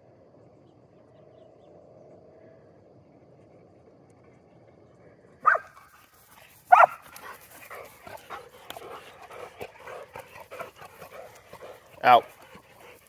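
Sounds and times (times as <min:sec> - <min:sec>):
dog barking: 0:05.4 - 0:05.8, 0:06.7 - 0:07.1
dog panting: 0:05.8 - 0:13.0.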